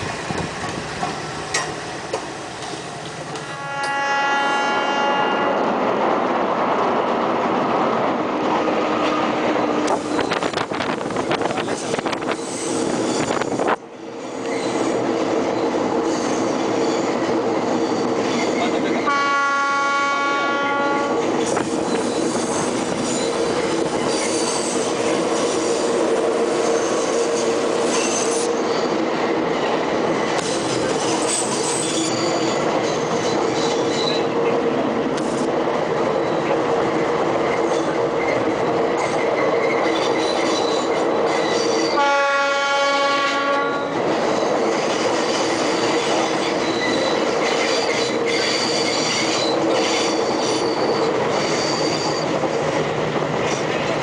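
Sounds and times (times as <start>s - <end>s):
train wheels and rail noise: 0.0s - 54.0s
locomotive horn: 3.4s - 5.8s, 19.0s - 21.2s, 41.9s - 43.9s.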